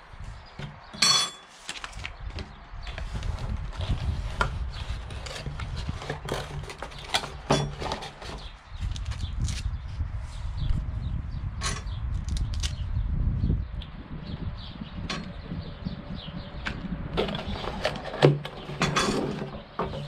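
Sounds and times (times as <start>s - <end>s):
cardboard and packing rustling: 1.5s - 9.6s.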